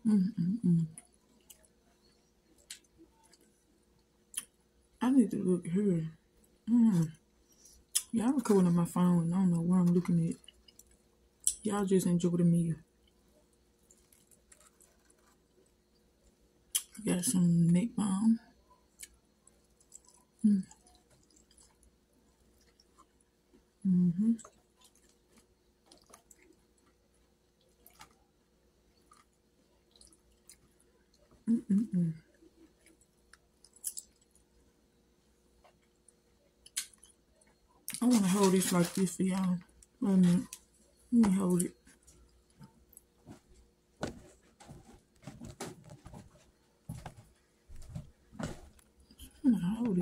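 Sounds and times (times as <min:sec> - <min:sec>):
eating and handling noises: 0:00.8 - 0:05.0, 0:06.3 - 0:12.0, 0:12.8 - 0:17.3, 0:18.5 - 0:50.0
wet chewing: 0:13.8 - 0:15.8, 0:19.0 - 0:23.7, 0:24.4 - 0:28.3, 0:28.9 - 0:31.4.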